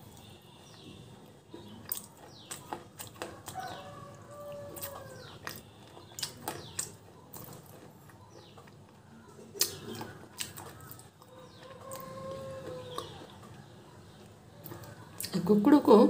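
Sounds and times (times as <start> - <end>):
crunchy chewing: 0.0 - 15.4
rooster crowing: 3.3 - 5.4, 11.3 - 13.3.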